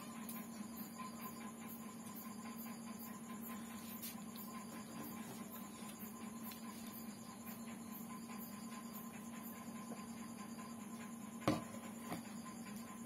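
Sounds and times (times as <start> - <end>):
electrical hum: 0.0 - 13.0
glass mug knocking on table: 11.5 - 12.2.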